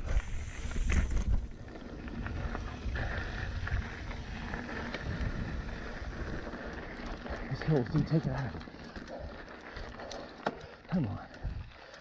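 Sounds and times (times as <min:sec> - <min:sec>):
wind rumbling on microphone: 0:00.0 - 0:08.6, 0:11.4 - 0:11.8
tyres rolling over dirt: 0:00.0 - 0:11.4
small clicks and rattles: 0:05.9 - 0:12.0.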